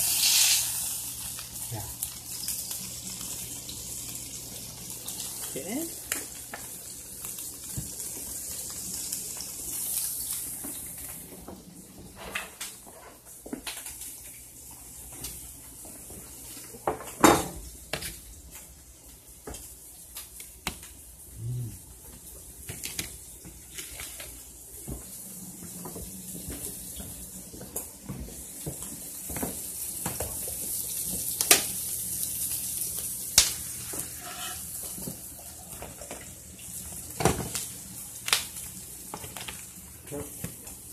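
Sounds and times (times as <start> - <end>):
steady high hiss: 0.0 - 12.8
pots and utensils clinking: 33.9 - 36.3.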